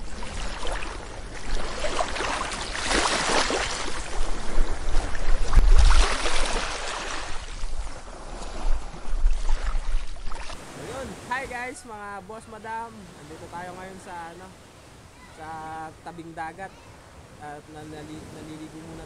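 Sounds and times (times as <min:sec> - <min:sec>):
wind buffeting microphone: 0:00.0 - 0:11.8
sea waves washing on shore: 0:00.0 - 0:19.0.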